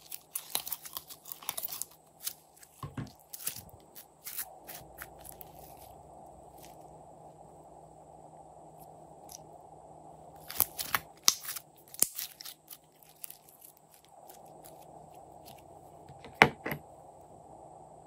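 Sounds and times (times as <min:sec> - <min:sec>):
hands working slime: 0:00.0 - 0:06.8, 0:10.4 - 0:16.6
plastic containers handled: 0:02.6 - 0:03.8, 0:16.1 - 0:16.8.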